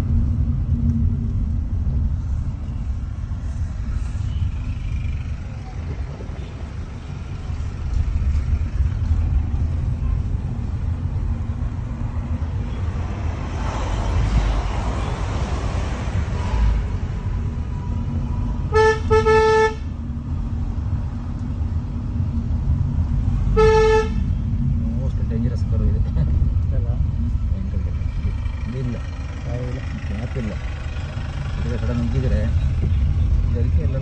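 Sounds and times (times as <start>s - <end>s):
car engine and road rumble: 0.0s - 34.0s
car horn honking: 18.6s - 20.0s, 23.5s - 24.4s.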